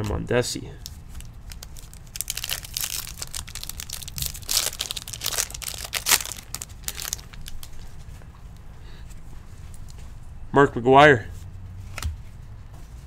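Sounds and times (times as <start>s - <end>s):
plastic wrapper crinkling and tearing: 0.8s - 8.0s.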